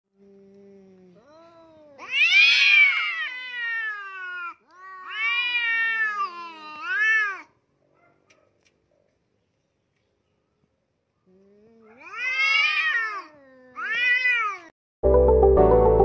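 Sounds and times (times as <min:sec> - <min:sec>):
cats yowling: 0:01.2 - 0:07.6, 0:11.8 - 0:14.7.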